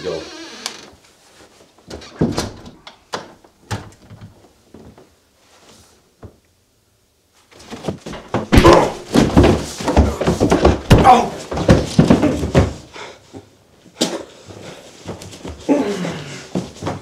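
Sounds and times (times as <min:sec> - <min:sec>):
thunks against wooden door: 0:01.9 - 0:02.8.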